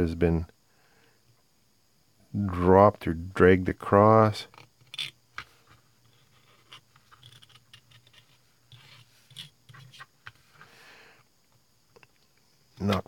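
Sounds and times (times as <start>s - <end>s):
knife blade scraping plastic: 4.5s - 10.7s.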